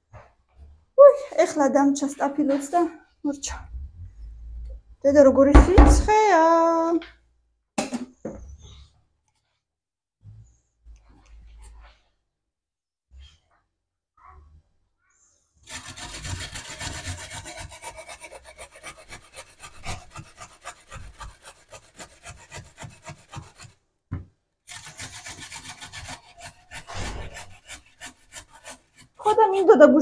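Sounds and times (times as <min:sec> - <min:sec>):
carrot grated on metal grater: 0:15.7 - 0:23.7, 0:24.7 - 0:29.7.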